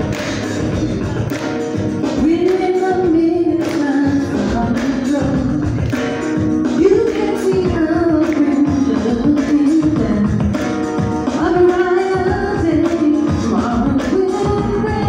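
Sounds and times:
hand claps: 0.0 - 3.0, 3.6 - 4.1, 5.6 - 6.5, 8.2 - 8.7, 10.5 - 11.1
band accompaniment: 0.0 - 15.0.

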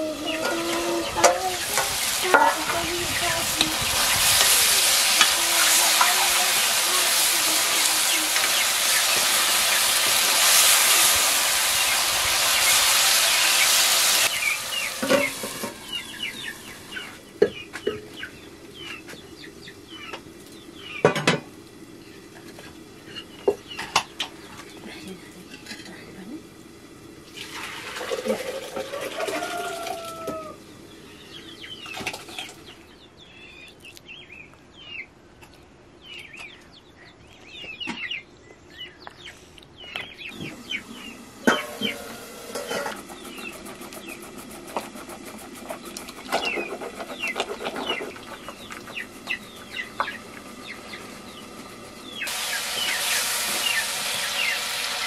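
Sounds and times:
chicks peeping: 0.0 - 21.0, 36.0 - 54.8
chickens clucking: 0.0 - 21.4, 28.0 - 30.7, 39.1 - 54.8
meat frying in a wok: 1.1 - 17.4, 26.5 - 30.2, 49.0 - 55.0
liquid pouring between pots: 27.3 - 30.1
stick stirring liquid: 41.4 - 50.5.

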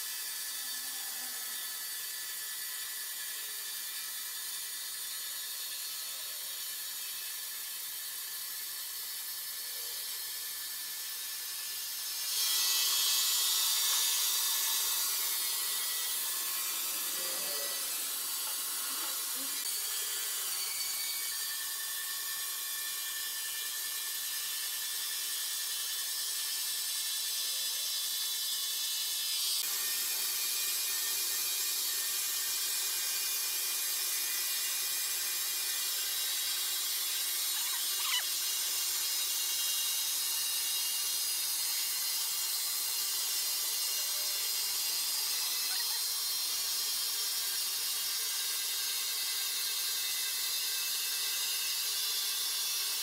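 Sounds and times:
band saw cutting log: 8.9 - 26.8, 29.6 - 53.0.

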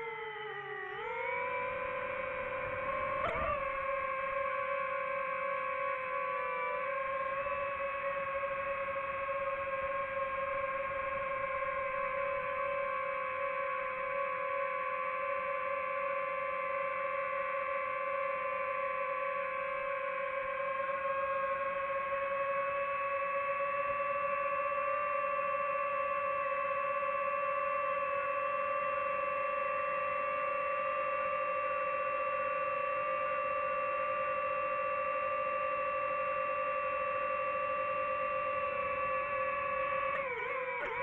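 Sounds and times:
quadcopter motors whining: 0.0 - 41.0.

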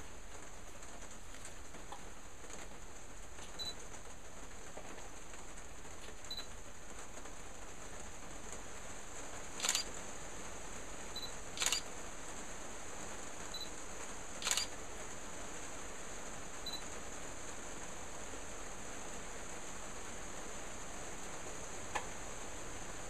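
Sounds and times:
steady background hiss: 0.0 - 23.0
short sharp clicks: 9.6 - 9.9, 11.6 - 11.8, 14.4 - 14.7.

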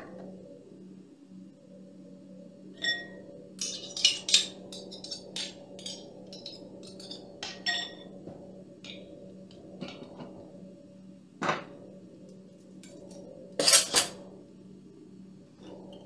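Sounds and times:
faint steady hum: 0.0 - 16.0
metal spoons clinking: 2.8 - 8.0, 13.6 - 14.2.

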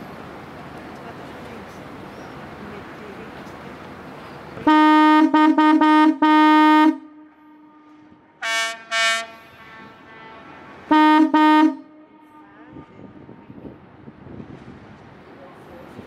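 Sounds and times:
higher-pitched ship horn blasts: 4.6 - 13.2
deep ship horn blasts: 4.6 - 13.6.

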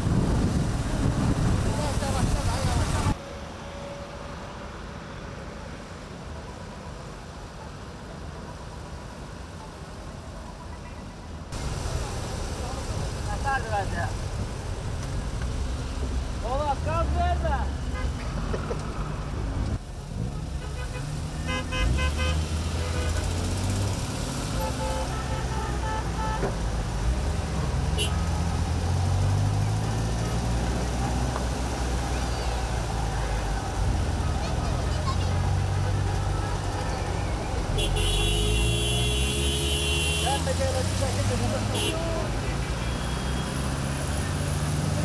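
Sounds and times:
tyres on the road: 0.0 - 45.0
car engines running: 11.4 - 45.0.

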